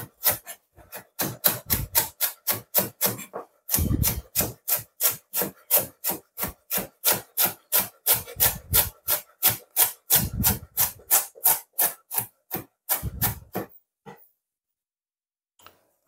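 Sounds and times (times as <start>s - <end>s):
knife shredding cabbage on board: 0.0s - 13.7s.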